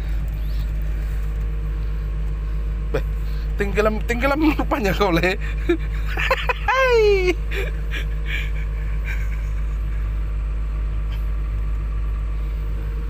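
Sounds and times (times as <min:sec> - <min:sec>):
diesel engine rumbling: 0:00.0 - 0:13.0.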